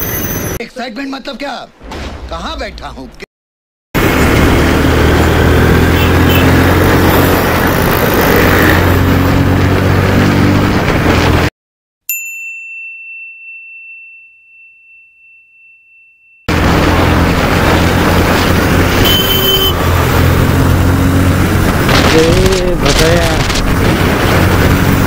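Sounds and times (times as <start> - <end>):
road and wind noise: 4.0 - 11.5, 16.5 - 25.0
bell-like ding: 12.1 - 16.5.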